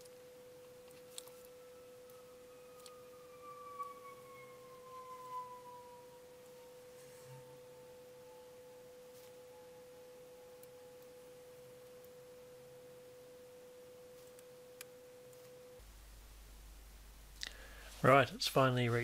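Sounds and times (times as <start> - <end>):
faint steady pure tone: 0.0 - 19.0
tone gliding down in pitch: 1.2 - 11.2.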